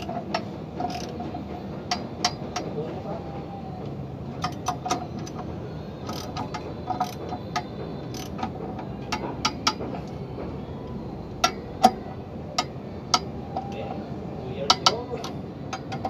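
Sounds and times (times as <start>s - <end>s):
ratchet wrench clicking on bolts: 0.0s - 1.2s, 4.4s - 5.4s, 6.0s - 8.5s, 14.7s - 16.0s.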